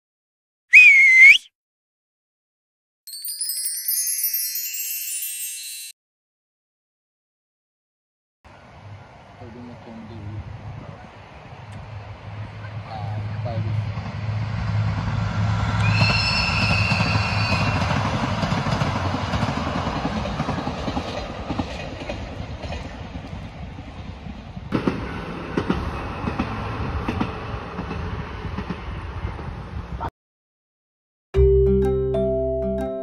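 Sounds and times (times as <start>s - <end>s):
train rumbling past: 8.5s - 30.1s
wheel squeal: 15.8s - 18.3s.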